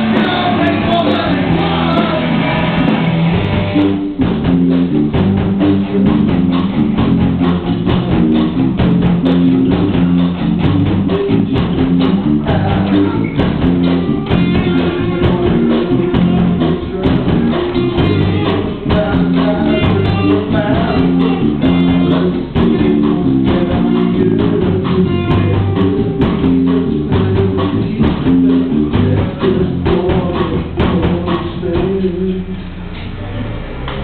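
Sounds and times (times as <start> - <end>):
live rock band playing: 0.0 - 32.4.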